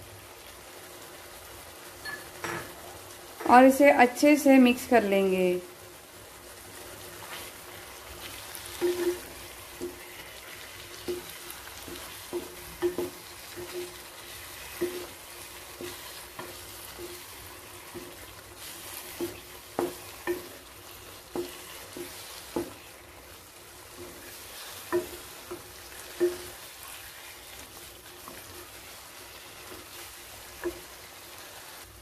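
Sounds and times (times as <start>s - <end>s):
frying sizzle: 0.0s - 32.0s
spatula scraping pan: 7.0s - 31.5s.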